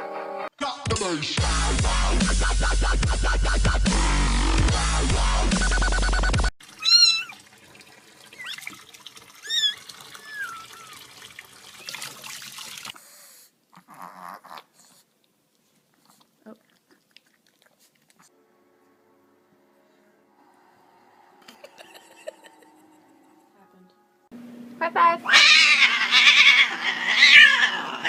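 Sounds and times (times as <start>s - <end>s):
dubstep music: 0.6s - 6.5s
water running from tap: 6.6s - 13.0s
kitten meowing: 6.8s - 7.4s, 9.4s - 10.9s, 25.3s - 28.0s.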